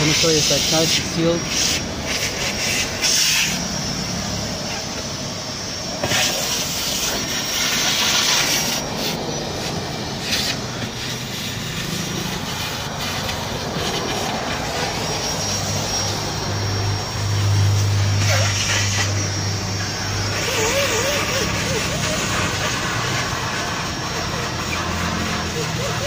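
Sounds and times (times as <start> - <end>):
shop vacuum motor whine: 0.0 - 26.0
vacuum hose on carpet: 0.0 - 26.0
low hum: 8.8 - 25.6.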